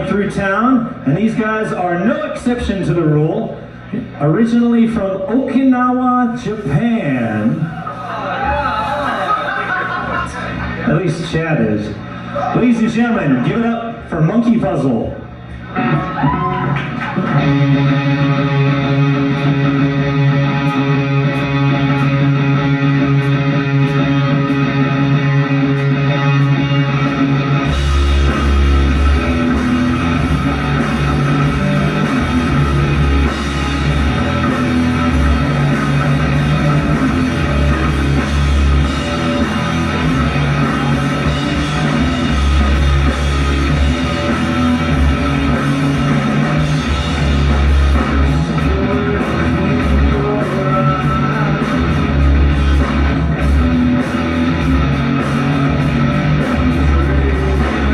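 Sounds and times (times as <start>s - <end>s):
live rock band playing: 6.2s - 57.9s
electric guitar: 15.1s - 57.9s.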